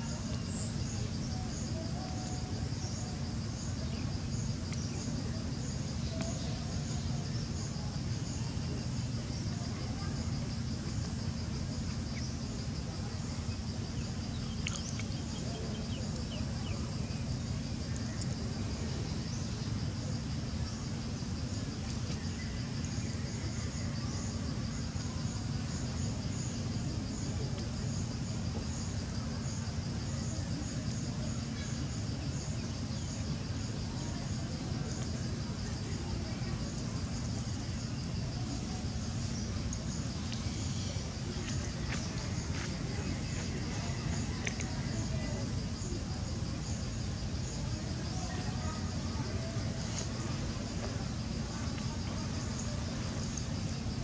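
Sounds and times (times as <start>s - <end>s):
insects chirping: 0.0s - 54.0s
steady low hum: 0.0s - 54.0s
faint clicks: 14.6s - 15.2s.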